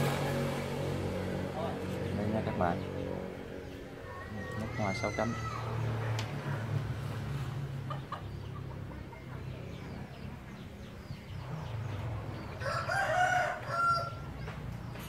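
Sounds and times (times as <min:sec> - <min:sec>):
rooster crowing: 0:12.6 - 0:14.3.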